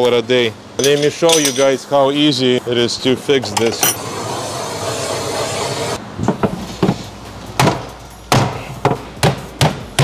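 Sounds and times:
gas torch hissing: 4.0s - 6.0s.

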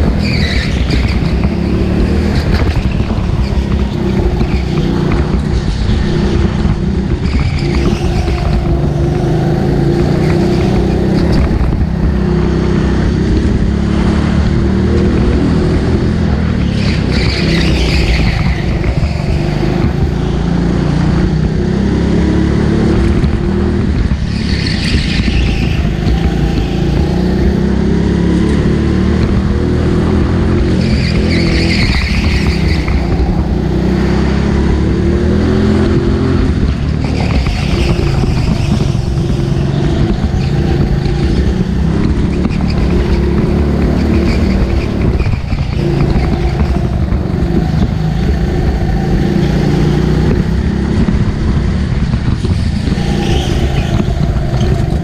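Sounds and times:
high-pitched tyre squeals: 0.0s - 11.8s, 16.4s - 20.7s, 24.2s - 27.6s, 30.6s - 34.4s, 36.6s - 49.8s, 52.4s - 55.0s
go-kart engine running hard: 0.0s - 55.0s.

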